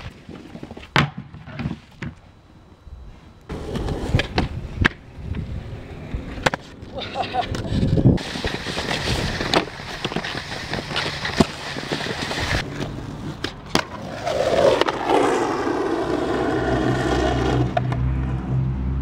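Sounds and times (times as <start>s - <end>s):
skateboard grinding on concrete: 3.5s - 5.0s, 5.8s - 18.5s.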